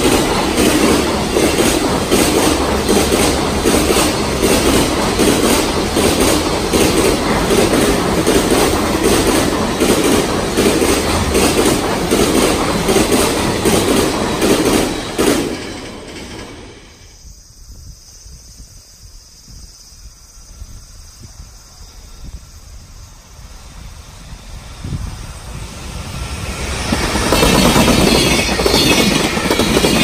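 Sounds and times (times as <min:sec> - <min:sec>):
train wheels clattering: 0:00.0 - 0:17.2, 0:25.5 - 0:30.0.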